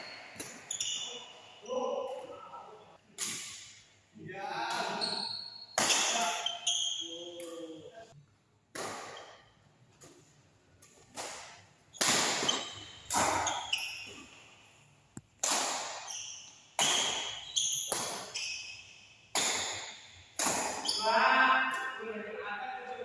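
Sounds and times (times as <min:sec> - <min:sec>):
badminton racket hitting shuttlecock: 0:10.8 - 0:14.0, 0:15.4 - 0:21.0.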